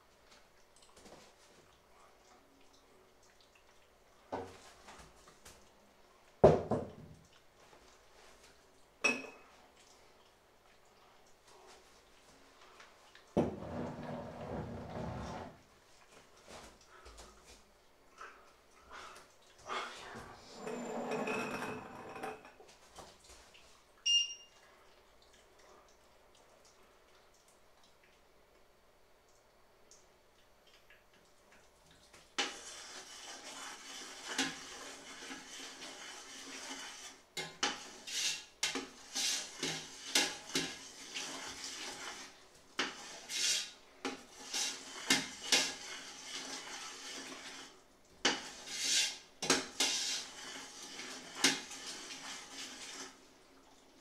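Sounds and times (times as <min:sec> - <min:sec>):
metal utensil scraping a pot: 0:20.4 - 0:22.6, 0:32.4 - 0:53.2.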